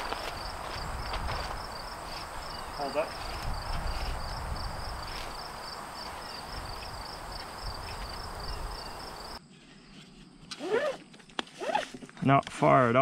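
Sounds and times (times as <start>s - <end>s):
wind rumble on microphone: 0.0s - 9.3s
insect chirping: 0.0s - 11.8s.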